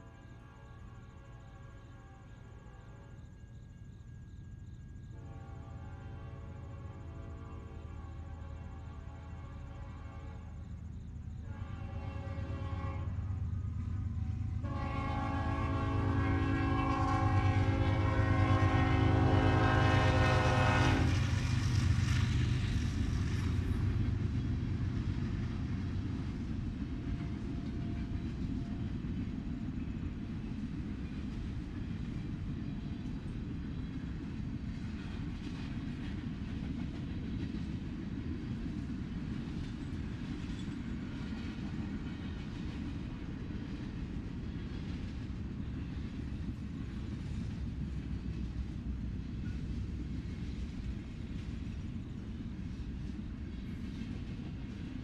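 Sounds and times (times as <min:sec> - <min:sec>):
locomotive air horn blasts: 0:00.0 - 0:03.2, 0:05.1 - 0:10.6, 0:11.4 - 0:13.4, 0:14.3 - 0:21.3.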